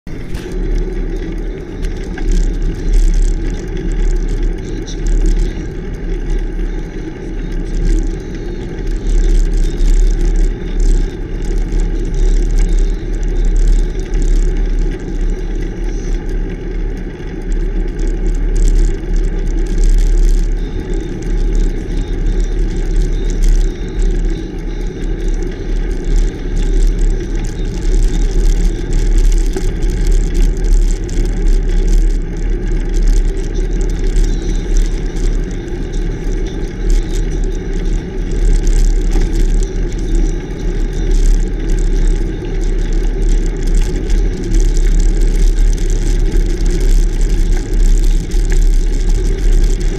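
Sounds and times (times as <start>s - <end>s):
wind rumble on microphone: 0.0s - 49.9s
bicycle tyres grinding on road: 0.1s - 49.9s.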